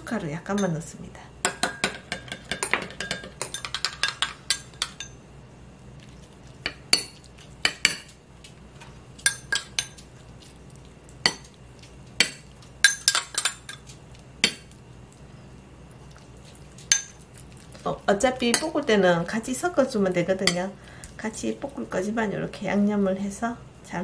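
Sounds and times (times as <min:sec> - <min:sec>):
metal spoon clinking glass bowl: 0:12.2 - 0:13.8.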